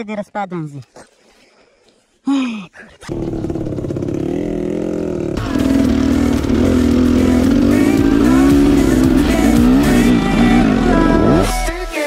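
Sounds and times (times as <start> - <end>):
dirt bike engine revving: 3.1 - 11.7.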